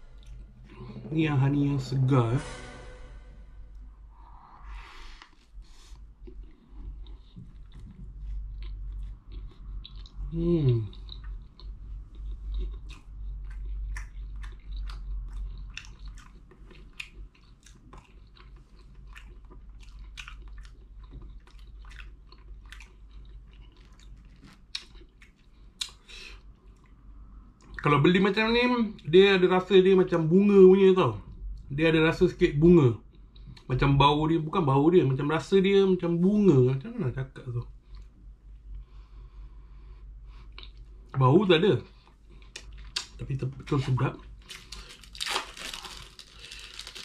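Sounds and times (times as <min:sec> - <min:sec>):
crunchy chewing: 0:06.2 - 0:26.1, 0:41.9 - 0:47.0
person humming: 0:10.3 - 0:10.9.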